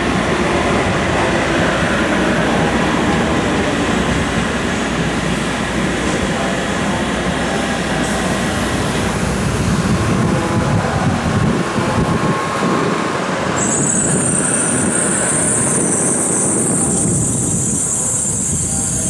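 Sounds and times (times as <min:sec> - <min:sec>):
train rushing noise: 0:00.0 - 0:19.0.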